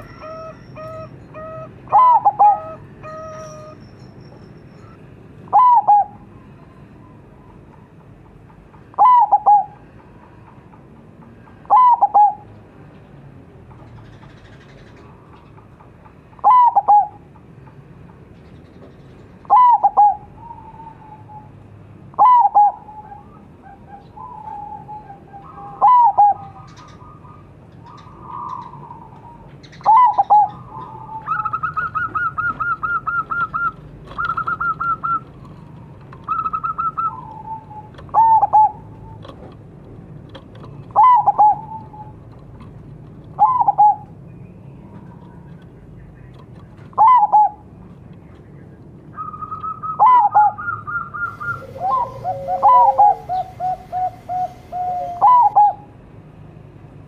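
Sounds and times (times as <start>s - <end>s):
dove calling falling notes: 0.0s - 3.8s, 5.5s - 6.2s, 8.9s - 9.9s, 11.6s - 12.4s, 16.4s - 17.2s, 19.4s - 39.3s, 40.7s - 42.2s, 43.4s - 44.1s, 46.9s - 47.6s, 49.2s - 55.9s
fast run of bird notes: 50.9s - 55.8s.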